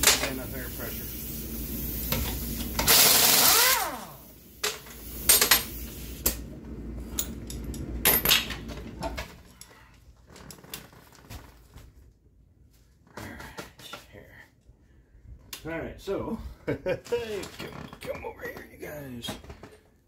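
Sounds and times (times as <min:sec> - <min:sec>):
pneumatic impact wrench: 0:02.0 - 0:06.4.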